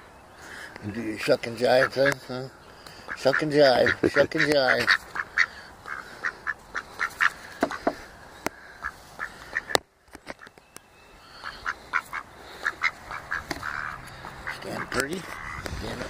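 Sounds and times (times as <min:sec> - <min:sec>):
duck short calls: 0:03.0 - 0:08.0, 0:11.4 - 0:15.9.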